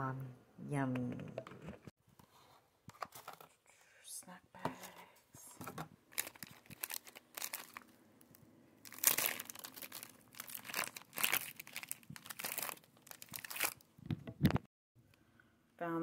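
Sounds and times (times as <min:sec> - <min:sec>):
plastic bags crinkling: 0:06.1 - 0:08.0, 0:08.8 - 0:13.8.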